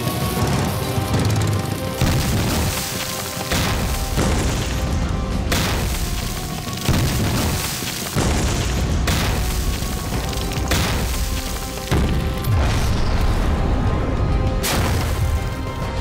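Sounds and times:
background music: 0.0 - 16.0
explosions booming: 3.5 - 13.9.

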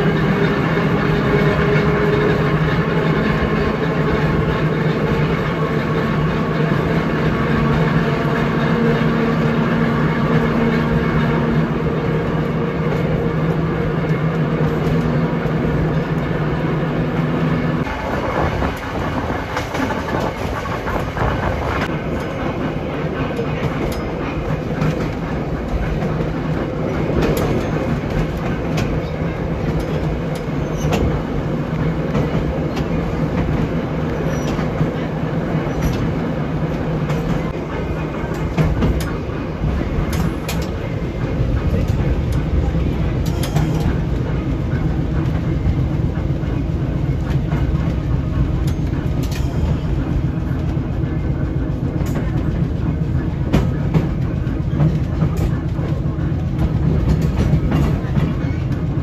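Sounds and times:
trolley motor hum: 0.0 - 59.0
wheels rumbling on rails: 0.0 - 59.0
wheels clicking over rail joints: 17.8 - 59.0.

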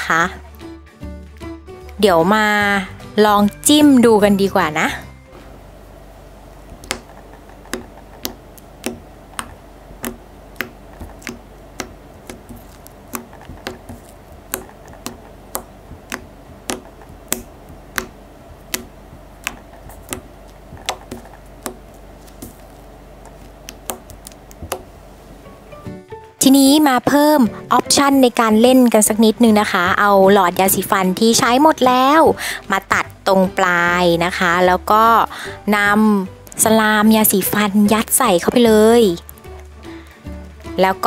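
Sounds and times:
finger poking slime with clicks: 7.7 - 18.1.

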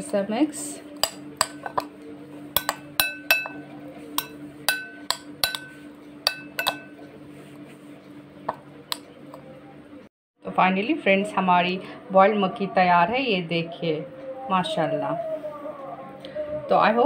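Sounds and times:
metal spoon clinking on glass bowl: 1.0 - 1.9, 2.6 - 3.6, 4.2 - 7.0.

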